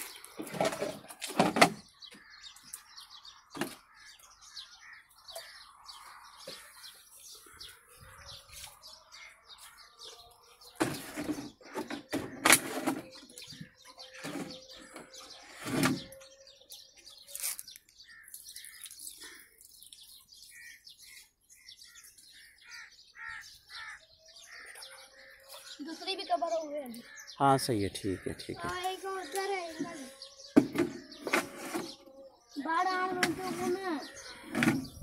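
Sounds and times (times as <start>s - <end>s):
small birds chirping: 0.0s - 35.0s
water splashing onto tiles: 18.3s - 20.0s.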